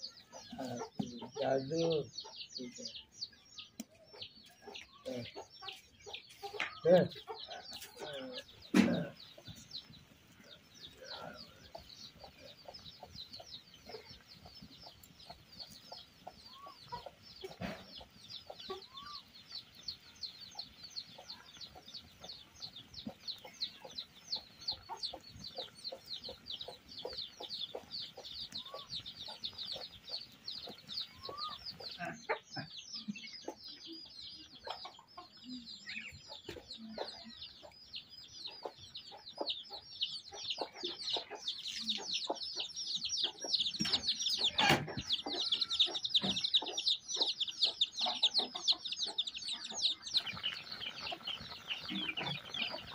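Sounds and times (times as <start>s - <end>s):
chicks peeping: 0.0s - 52.9s
hen clucking softly: 20.5s - 37.8s, 38.4s - 52.9s.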